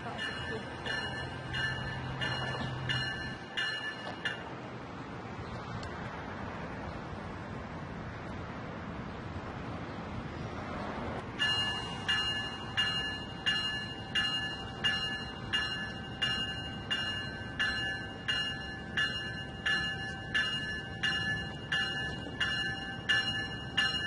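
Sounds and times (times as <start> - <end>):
train bell ringing: 0.0 - 4.6, 11.4 - 24.0
low rumble of train: 0.0 - 24.0.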